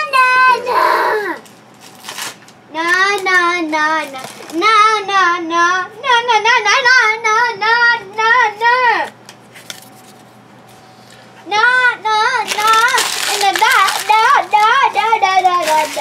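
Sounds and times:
young child singing: 11.5 - 16.0.

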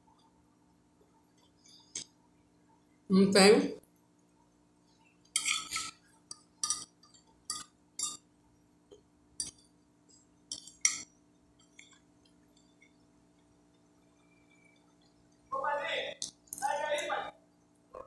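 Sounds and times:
metal spoon scraping glass plate: 5.4 - 6.0.

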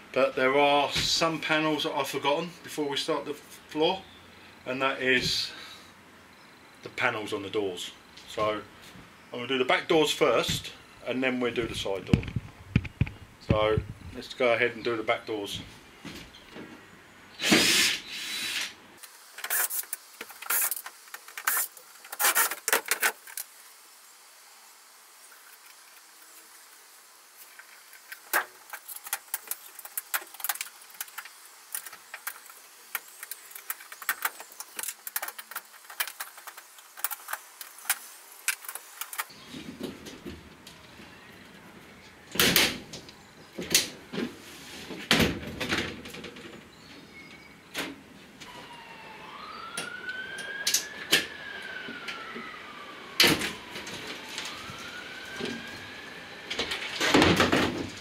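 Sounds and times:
faint siren wailing: 40.8 - 42.3, 48.4 - 57.0.

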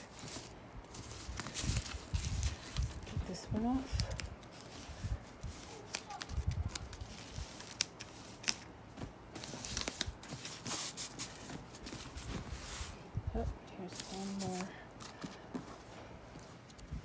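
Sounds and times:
plastic wrap crinkling: 0.0 - 13.0
scissors snipping: 5.6 - 8.6.

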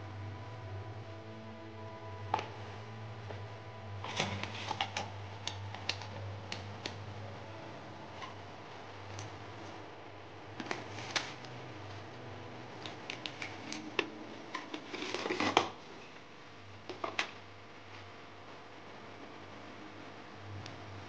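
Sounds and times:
low steady hum: 0.0 - 21.0
paper packets crinkling and rustling: 10.6 - 11.6, 12.8 - 15.8.

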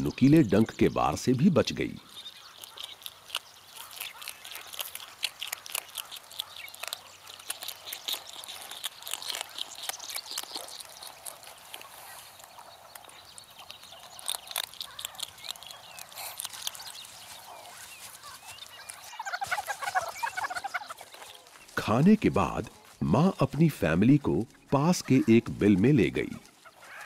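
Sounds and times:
meerkat crackling clicks: 2.5 - 17.4
meerkat squeaky calls: 17.5 - 21.0.

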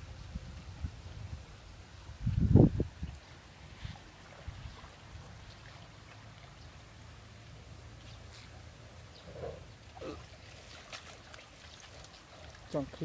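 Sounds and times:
water splashing and dripping: 2.4 - 9.1, 9.7 - 13.0.

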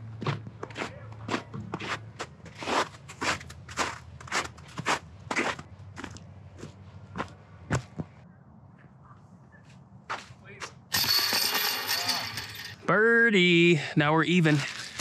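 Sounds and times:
footsteps crunching through snow: 0.7 - 7.3.

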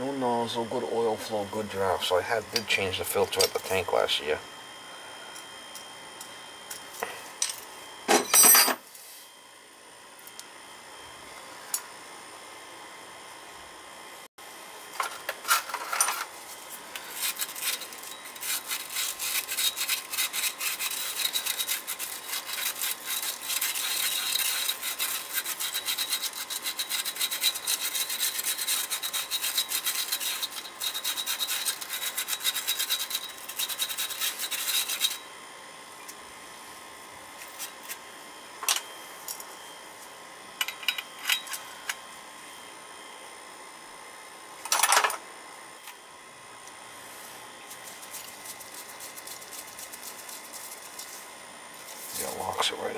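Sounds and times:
scrubbing metal parts: 17.0 - 35.2.

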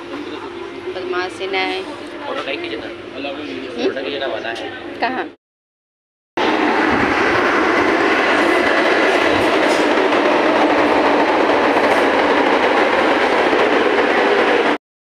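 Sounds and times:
train wheels rushing on rails: 6.4 - 14.8.

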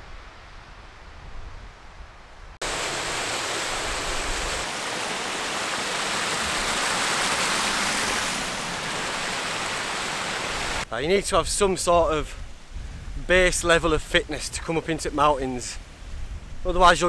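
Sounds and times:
stream cascading over rocks: 2.6 - 10.9
faint low wind rumble: 10.8 - 17.0.

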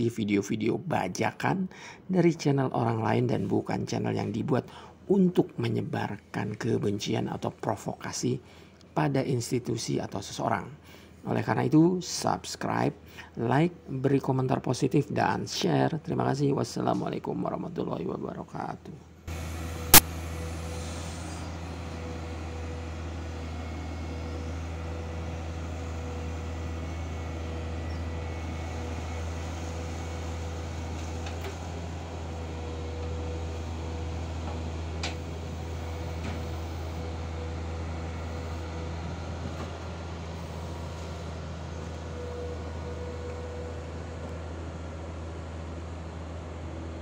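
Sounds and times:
diesel engine droning: 19.3 - 47.0.

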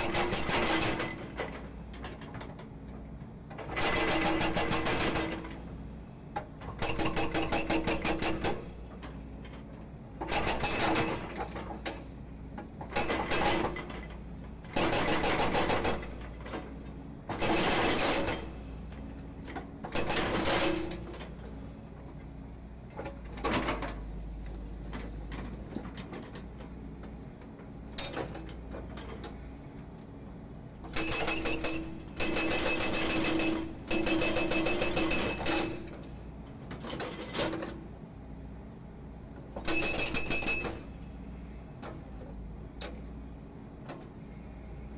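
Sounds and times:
hydraulic breaker hammering concrete: 0.0 - 1.2, 3.8 - 5.4, 14.8 - 16.0, 31.0 - 35.9.

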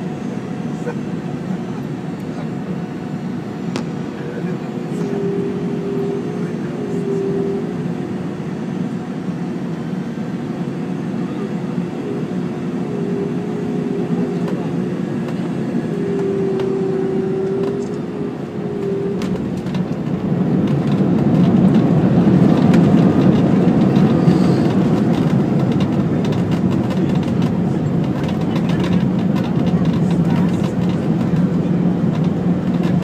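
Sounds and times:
airliner engine whine: 0.0 - 33.0
wheels rumbling on runway: 0.0 - 33.0.

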